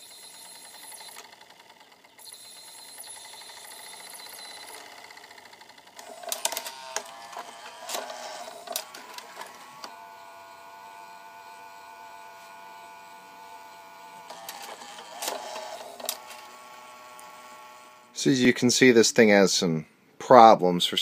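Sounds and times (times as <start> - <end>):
disc spinning whine: 0.0 - 18.1
cd changer clicks and clatter: 0.7 - 2.1, 3.4 - 10.0, 14.2 - 17.4.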